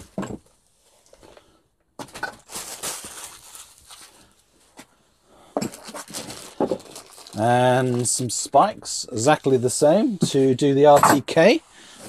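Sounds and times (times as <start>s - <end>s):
plastic bags rustling: 2.2s - 4.4s, 5.6s - 8.2s.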